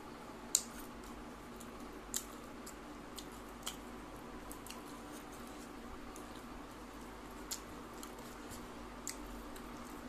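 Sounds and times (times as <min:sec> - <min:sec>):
faint steady hum: 0:00.0 - 0:10.0
sharp wet clicks: 0:00.5 - 0:03.9
close chewing of food: 0:00.5 - 0:10.0.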